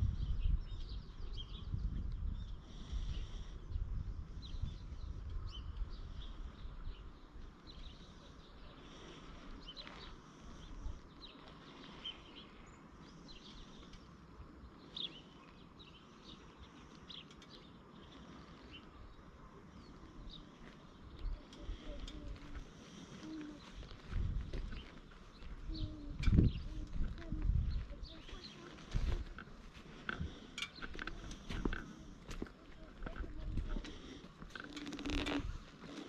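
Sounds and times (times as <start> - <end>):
wind rumble on microphone: 0.0 - 8.0, 23.4 - 36.0
small birds chirping: 0.0 - 36.0.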